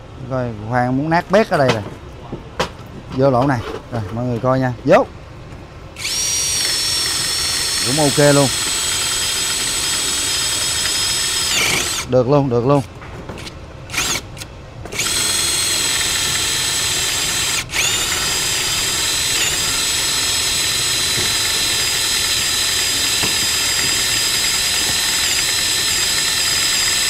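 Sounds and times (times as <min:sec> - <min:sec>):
electric drill whining: 0:06.0 - 0:12.1, 0:13.9 - 0:14.2, 0:14.9 - 0:27.0.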